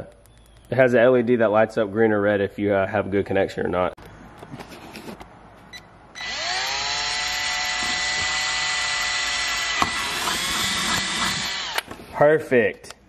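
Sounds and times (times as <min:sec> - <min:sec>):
cordless drill whining: 0:06.2 - 0:11.9.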